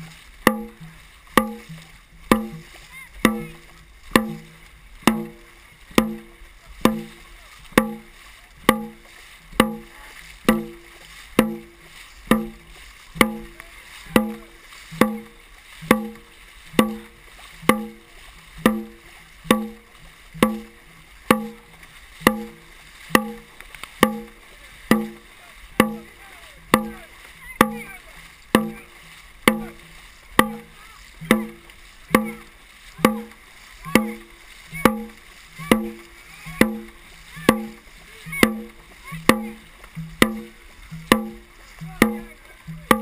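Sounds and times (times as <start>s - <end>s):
drum beats ringing boom: 0.0s - 43.0s
paddles splashing: 0.0s - 43.0s
water rushing: 0.0s - 43.0s.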